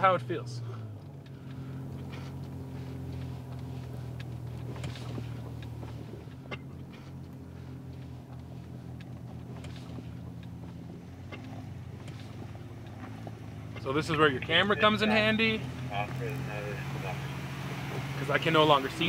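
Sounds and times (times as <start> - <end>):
rocks cracking under tyres: 0.0 - 19.0
truck engine running at low revs: 0.0 - 19.0.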